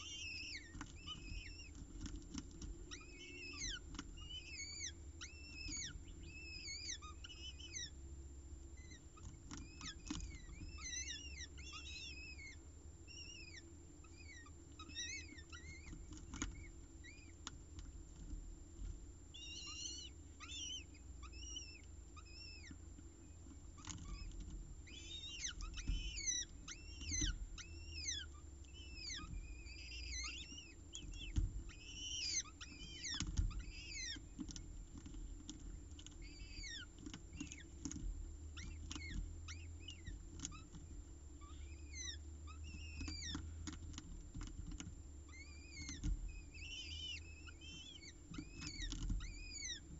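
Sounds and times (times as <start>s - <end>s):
falcon chicks begging chirps: 0.0s - 49.9s
low steady hum: 0.0s - 49.9s.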